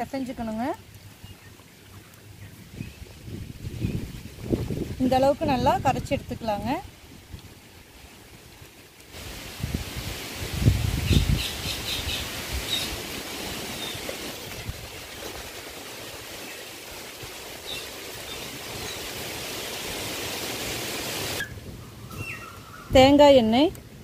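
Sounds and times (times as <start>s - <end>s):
steady rushing hiss: 6.7s - 21.4s
birds chirping: 11.0s - 14.6s, 21.3s - 23.6s.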